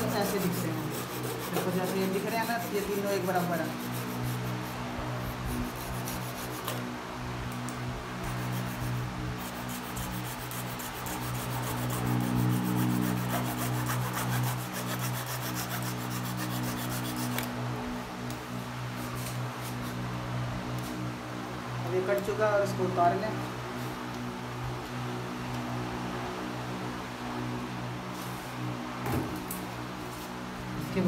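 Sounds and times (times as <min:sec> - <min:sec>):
hacksaw cutting plastic: 0:00.0 - 0:04.7, 0:09.5 - 0:17.5.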